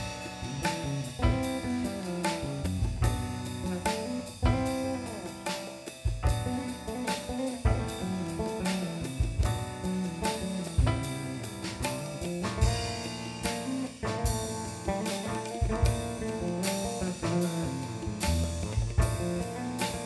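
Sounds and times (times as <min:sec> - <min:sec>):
jazz fusion band playing: 0:00.0 - 0:20.0.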